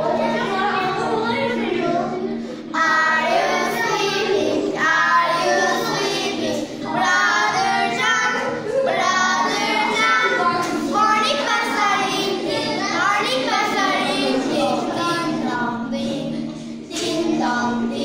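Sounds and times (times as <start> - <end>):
girls singing in unison: 0.0 - 18.0.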